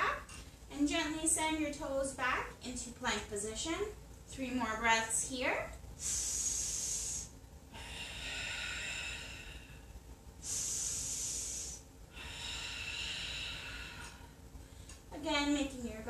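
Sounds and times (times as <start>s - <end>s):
woman breathing deeply: 6.0s - 15.1s.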